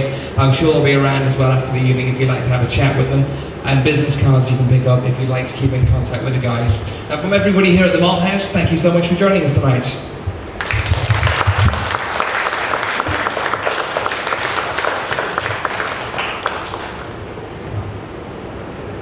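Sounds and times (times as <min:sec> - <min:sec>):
audience applauding: 0:10.6 - 0:17.3.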